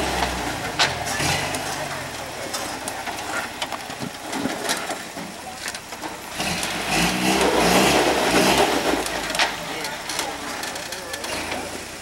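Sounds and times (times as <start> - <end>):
pickup truck engine revving: 0.0 - 3.6, 6.2 - 12.0.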